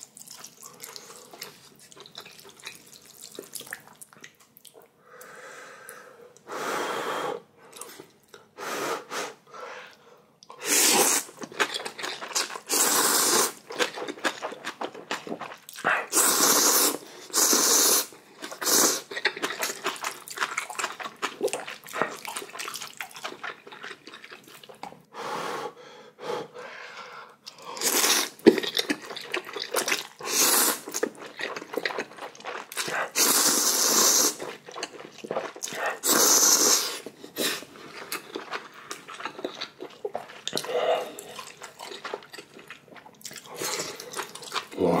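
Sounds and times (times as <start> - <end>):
chewing and smacking: 0.0 - 4.9, 11.2 - 12.7, 13.4 - 16.2, 18.1 - 25.1, 27.4 - 30.2, 30.8 - 33.5, 34.3 - 44.9
person slurping noodles: 10.6 - 11.4, 12.3 - 13.6, 15.9 - 19.7, 27.6 - 28.8, 29.5 - 31.2, 32.6 - 34.8, 35.4 - 37.8.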